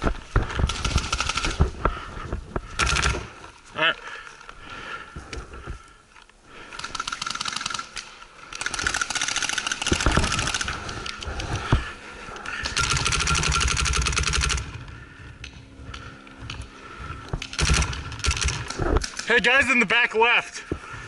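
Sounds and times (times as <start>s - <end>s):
paintball marker rapid firing: 0.4s - 1.7s, 2.7s - 3.3s, 6.8s - 11.0s, 12.6s - 14.8s, 17.4s - 19.4s.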